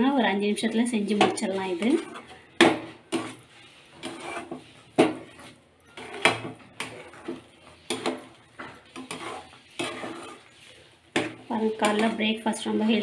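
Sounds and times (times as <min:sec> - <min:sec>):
spatula scraping a metal pan: 0:00.5 - 0:13.0
metal spatula knocking a pan: 0:02.6 - 0:03.4, 0:05.0 - 0:05.3, 0:06.0 - 0:10.1, 0:11.1 - 0:12.3.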